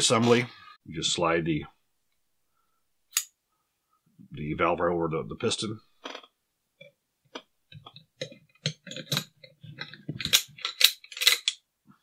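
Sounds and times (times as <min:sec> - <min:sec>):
metal rifle parts clicking: 0:08.2 - 0:11.6.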